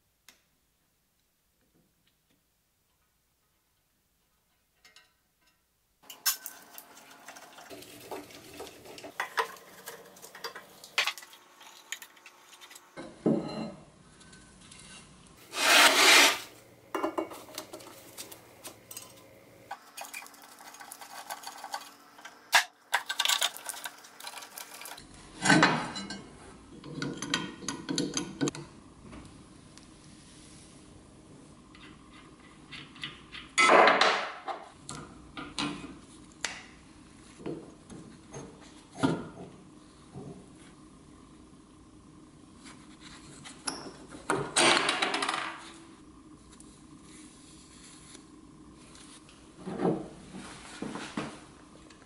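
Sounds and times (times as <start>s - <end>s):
tools scraping metal: 13.5s - 16.5s.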